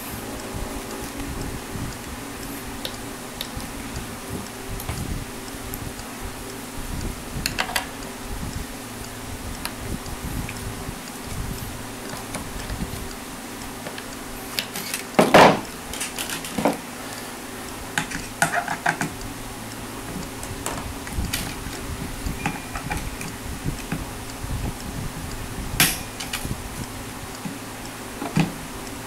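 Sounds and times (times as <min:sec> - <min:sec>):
electric fan hum: 0:00.0 - 0:29.0
guitar hardware clicking and clattering: 0:14.7 - 0:16.8.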